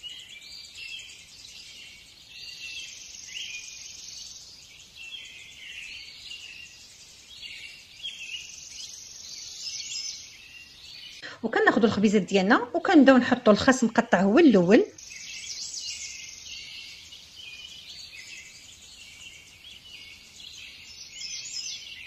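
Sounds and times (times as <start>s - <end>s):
faint high-pitched chirping: 0.0s - 22.0s.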